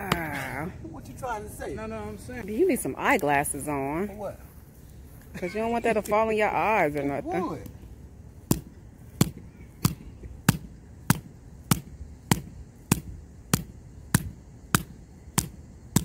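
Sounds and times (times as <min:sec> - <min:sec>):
hatchet chopping wood: 0:08.5 - 0:16.0.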